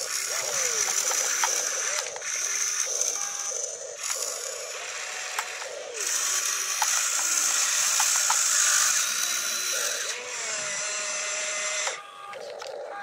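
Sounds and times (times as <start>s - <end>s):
steady whine: 0.0s - 13.0s
toy motors whirring and grinding: 0.0s - 13.0s
stones clicking: 6.7s - 8.6s.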